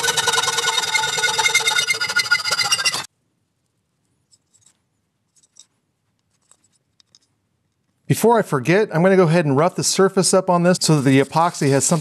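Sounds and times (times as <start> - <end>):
hacksaw cutting metal: 0.0 - 3.1
small brush scratching wood: 0.0 - 3.1, 10.8 - 12.0.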